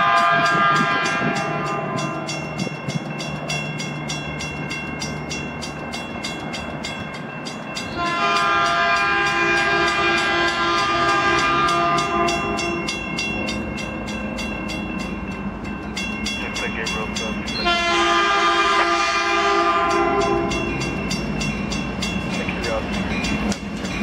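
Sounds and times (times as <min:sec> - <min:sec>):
train horn blast: 0:00.0 - 0:02.4, 0:08.0 - 0:12.9, 0:17.6 - 0:20.6
railroad crossing bell ringing: 0:00.0 - 0:24.0.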